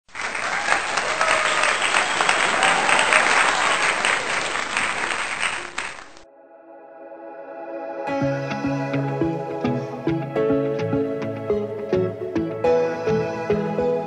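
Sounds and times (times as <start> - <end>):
crowd applauding: 0.0 - 6.2
quiet sustained music: 6.3 - 14.0.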